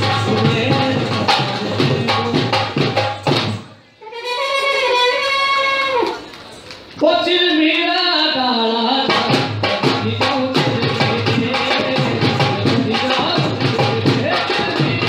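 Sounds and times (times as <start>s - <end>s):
drums quick steady beat: 0.0s - 3.7s, 9.1s - 15.0s
brass horn wavering melody: 4.0s - 6.2s.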